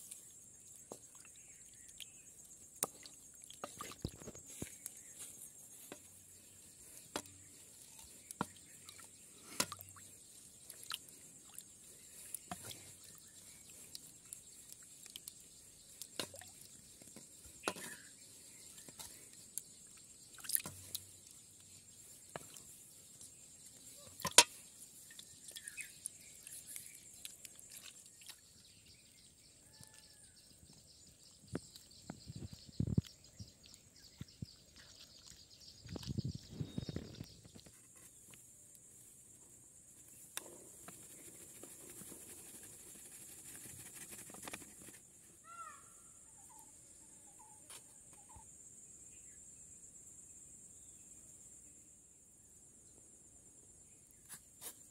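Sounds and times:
bird chirps: 0:03.6 - 0:38.1, 0:45.4 - 0:49.5.

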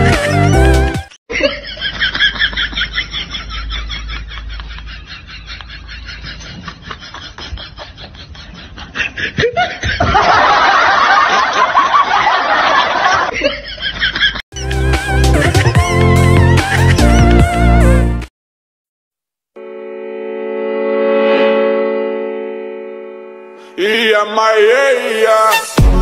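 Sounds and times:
burst of laughter: 0:01.3 - 0:14.4
people snickering: 0:01.3 - 0:14.4.

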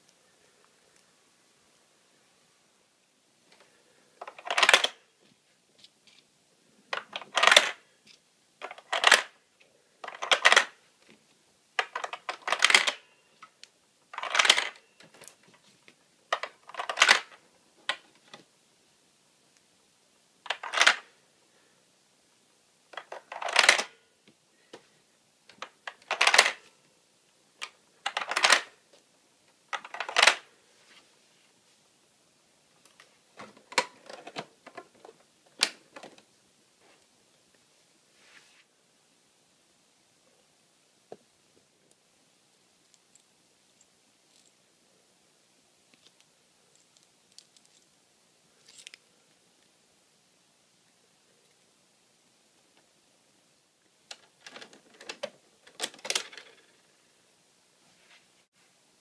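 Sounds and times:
plastic toy cans clattering: 0:04.2 - 0:05.0, 0:07.0 - 0:07.8, 0:08.6 - 0:09.4, 0:10.0 - 0:10.8, 0:11.8 - 0:13.0, 0:14.1 - 0:15.3, 0:16.3 - 0:18.0, 0:20.5 - 0:21.0, 0:23.0 - 0:23.9, 0:25.6 - 0:26.6, 0:27.6 - 0:28.7, 0:29.7 - 0:30.5, 0:54.1 - 0:56.7.

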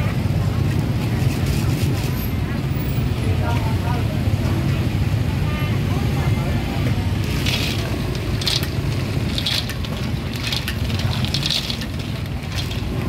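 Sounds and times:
shells scraping on wok: 0:07.2 - 0:13.0.

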